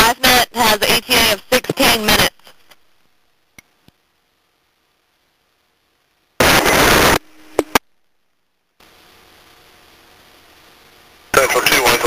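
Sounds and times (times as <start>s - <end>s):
radio static burst: 0.0s - 3.0s, 6.4s - 7.8s, 8.8s - 12.0s
open-channel hiss: 0.0s - 12.0s
low radio tone: 6.4s - 7.9s, 8.8s - 12.0s.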